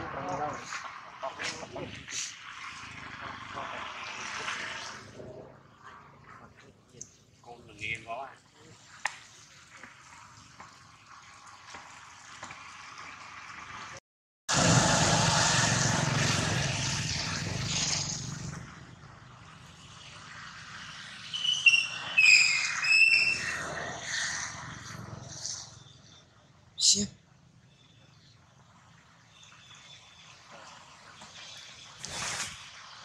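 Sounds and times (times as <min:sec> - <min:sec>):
loud rushing noise: 0:14.5 - 0:18.5.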